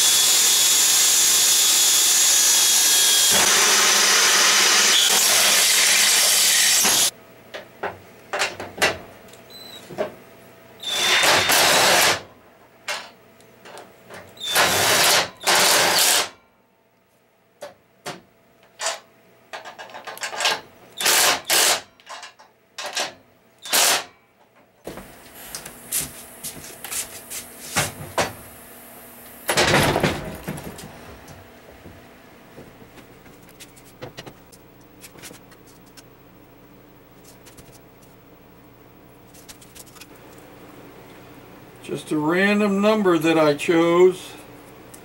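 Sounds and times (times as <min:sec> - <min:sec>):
impact driver running: 0:00.0 - 0:07.1, 0:10.9 - 0:12.2.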